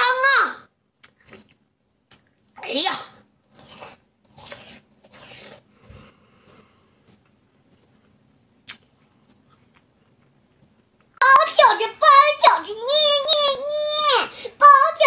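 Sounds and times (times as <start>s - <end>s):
child chewing melon: 3.2s - 11.2s.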